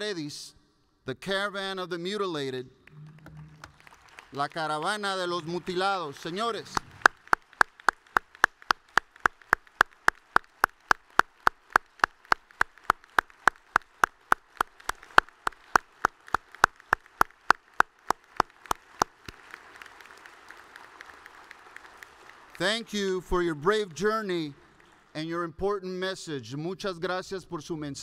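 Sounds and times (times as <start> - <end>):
person clapping hands: 2.8 - 25.1.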